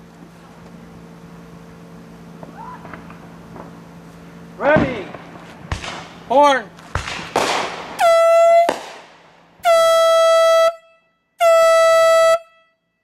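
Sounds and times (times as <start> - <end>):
air horn blasts: 8.0 - 8.8, 9.6 - 13.0.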